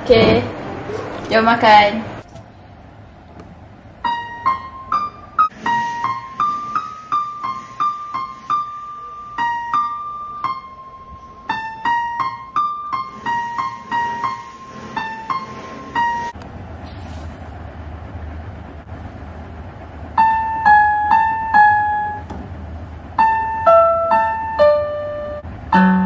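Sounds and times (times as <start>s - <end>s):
electronic keyboard piano melody: 4.0s - 16.4s, 20.2s - 22.3s, 23.2s - 26.0s.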